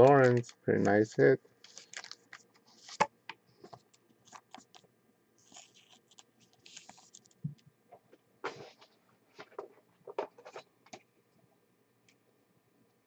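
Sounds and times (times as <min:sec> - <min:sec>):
card handling clicks and scrapes: 0:01.6 - 0:03.1, 0:05.4 - 0:07.4.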